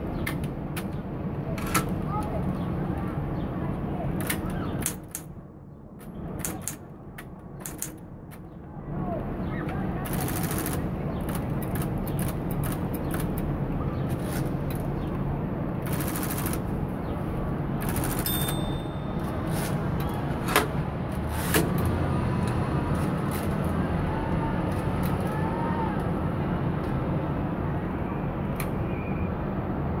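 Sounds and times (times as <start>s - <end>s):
typewriter mechanism clicking: 6.4s - 6.8s.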